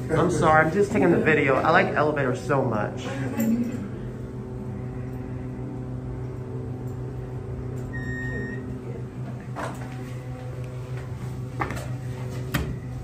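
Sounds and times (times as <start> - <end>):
elevator hum: 0.0 - 13.0
elevator arrival chime: 7.8 - 8.8.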